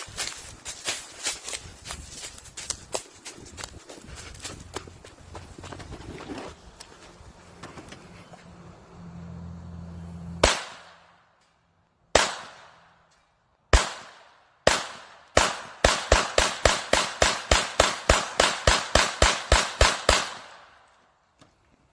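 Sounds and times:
pistol shots: 10.4s - 11.1s, 12.1s - 12.9s, 13.7s - 20.8s.

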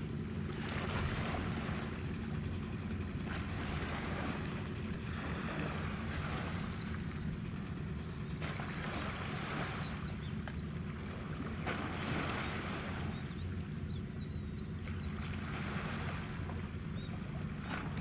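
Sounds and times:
low rumble of ship engines: 0.0s - 18.0s
small birds chirping: 6.4s - 11.4s, 12.3s - 15.7s, 16.4s - 17.9s.

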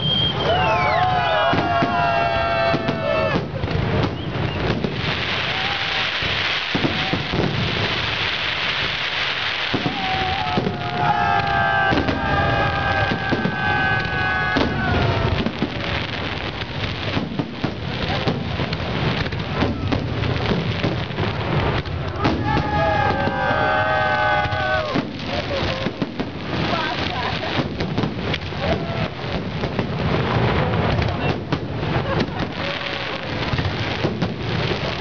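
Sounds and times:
fireworks crackling: 0.0s - 35.0s.

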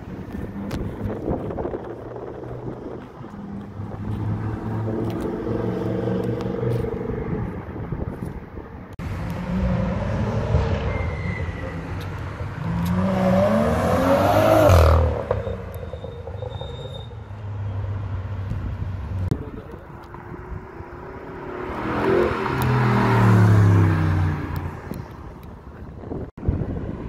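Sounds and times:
car accelerating hard: 12.5s - 15.4s, 19.4s - 24.8s
car passing by: 20.3s - 25.0s.

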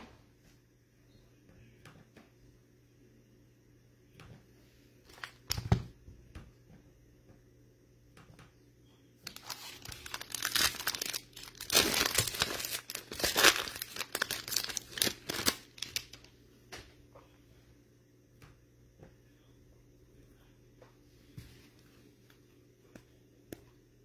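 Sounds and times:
foil wrapper tearing and crinkling: 9.3s - 16.3s.

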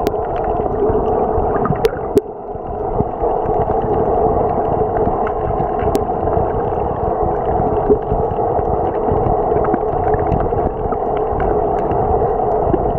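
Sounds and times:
faint underwater clicks: 0.0s - 12.9s
muffled underwater rushing: 0.0s - 12.9s.

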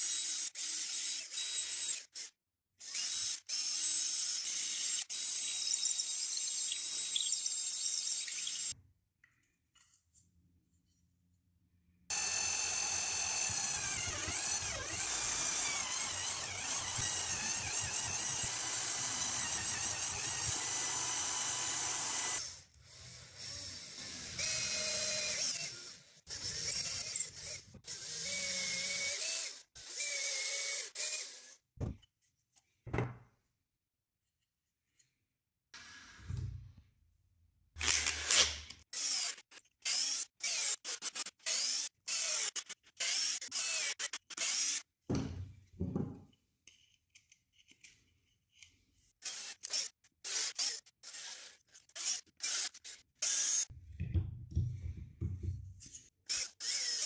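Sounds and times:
cordless drill bursts into wood: 37.8s - 39.3s.

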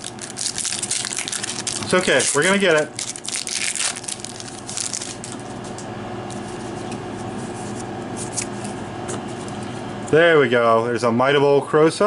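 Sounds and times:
foil wrapper crinkling and tearing: 0.0s - 5.6s.

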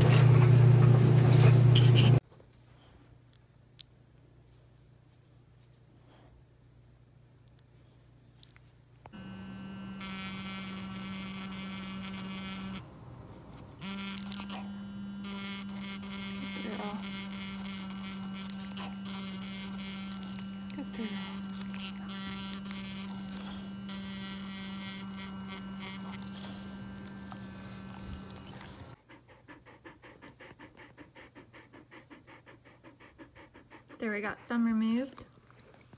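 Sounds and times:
dental scaler buzzing: 9.1s - 29.0s.

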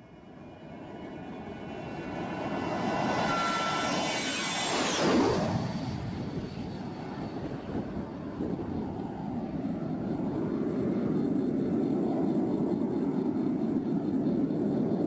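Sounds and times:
high engine whine dropping in pitch: 0.0s - 11.2s
jet airliner passing overhead: 0.0s - 15.0s.

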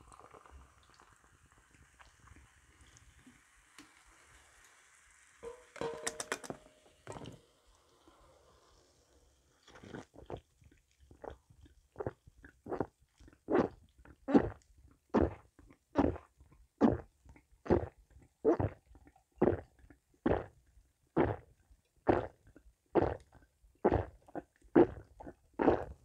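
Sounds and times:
person gulping soda: 0.0s - 3.2s, 9.6s - 26.0s.

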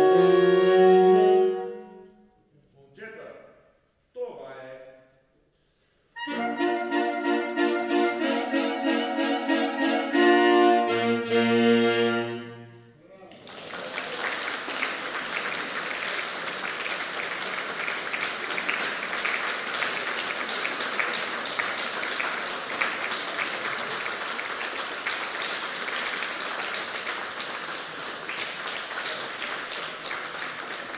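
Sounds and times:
audience applause: 13.3s - 30.9s.

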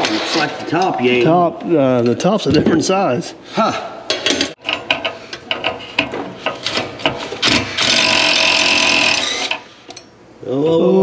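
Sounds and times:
metal tools knocking: 4.1s - 7.3s
powered wrench running: 6.5s - 9.7s.

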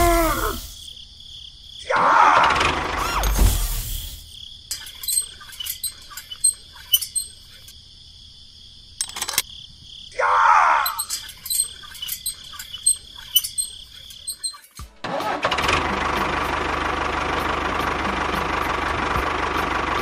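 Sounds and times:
crickets chirring: 0.0s - 14.8s.

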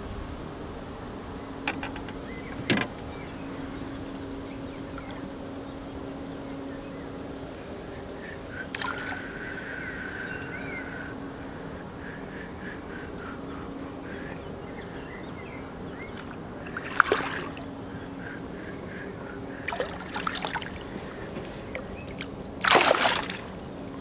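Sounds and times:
fish splashing in water: 8.8s - 9.2s, 16.1s - 17.7s, 19.6s - 21.0s, 21.6s - 24.0s.

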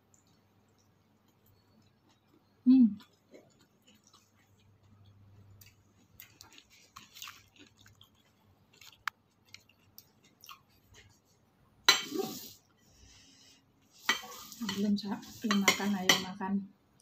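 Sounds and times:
person chewing leafy greens: 0.0s - 11.4s.

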